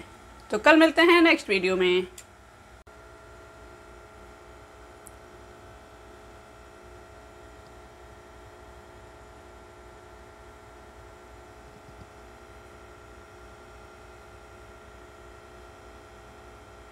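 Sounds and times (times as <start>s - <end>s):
low hum with hiss: 0.0s - 16.9s.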